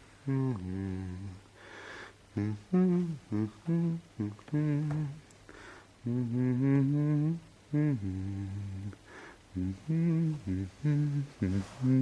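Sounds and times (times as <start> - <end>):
person humming: 0.2 - 1.5, 2.3 - 5.3, 6.0 - 12.0
breaths: 1.6 - 2.2, 5.5 - 6.0, 9.0 - 9.5.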